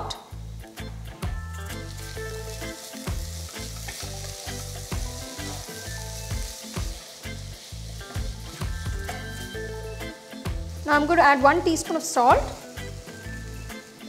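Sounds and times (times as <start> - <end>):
vegetables sizzling in oil: 0.0 - 14.0
spatula stirring: 1.9 - 9.6.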